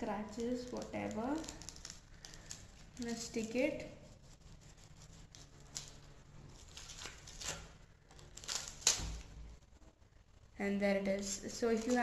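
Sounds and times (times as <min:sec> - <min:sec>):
tape rustling: 0:00.2 - 0:09.3, 0:11.1 - 0:12.0
tape ripping peel: 0:00.3 - 0:03.3, 0:04.7 - 0:09.4, 0:11.2 - 0:12.0.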